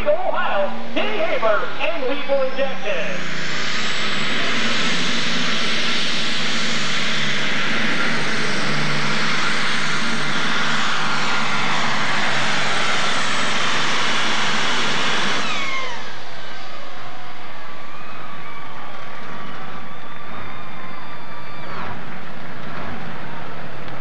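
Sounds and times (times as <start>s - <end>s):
high steady whine: 0.0s - 24.0s
tractor engine at full load: 3.2s - 17.1s.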